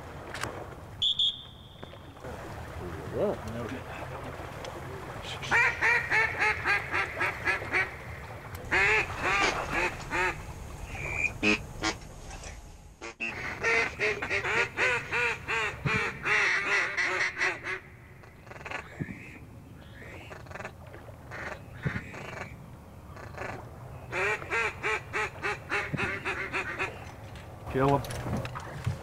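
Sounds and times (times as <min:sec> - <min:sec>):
duck call quacking: 0:05.5 - 0:07.9, 0:08.7 - 0:12.0, 0:13.0 - 0:17.8.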